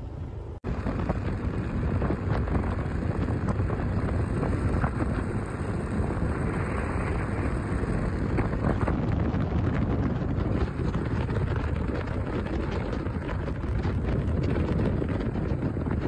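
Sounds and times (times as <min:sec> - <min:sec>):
motorbike cruising: 0:00.0 - 0:16.0
wind buffeting microphone: 0:00.0 - 0:16.0.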